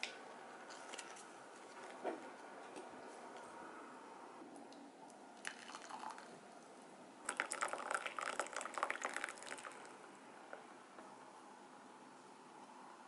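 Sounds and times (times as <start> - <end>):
hot water pouring into mug: 5.4 - 6.3, 7.2 - 10.0.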